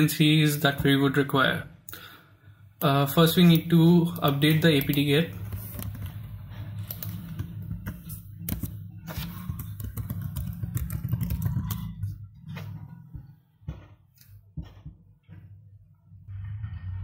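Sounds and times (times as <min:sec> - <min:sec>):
steady low hum: 0:00.0 - 0:17.0
keyboard typing: 0:03.2 - 0:12.3.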